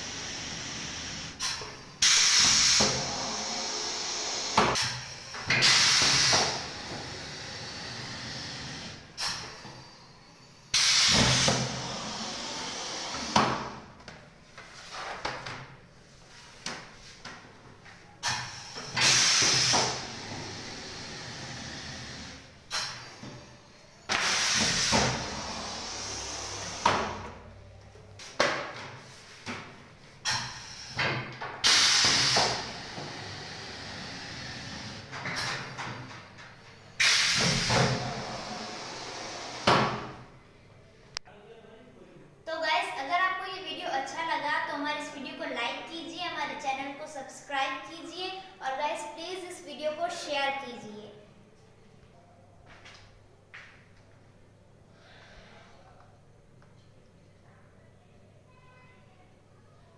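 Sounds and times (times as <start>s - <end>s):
bursts of exhausting air: 0.0s - 13.8s, 18.2s - 27.6s, 30.2s - 35.8s, 36.8s - 40.3s
compressed air hissing: 0.0s - 13.8s, 18.2s - 27.4s, 30.2s - 35.8s, 36.8s - 40.3s.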